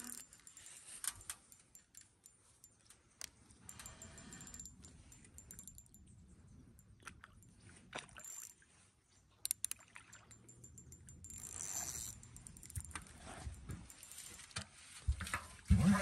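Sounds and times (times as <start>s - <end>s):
fishing reel clicks and rattles: 0.0s - 6.1s, 8.1s - 8.6s, 9.4s - 15.4s.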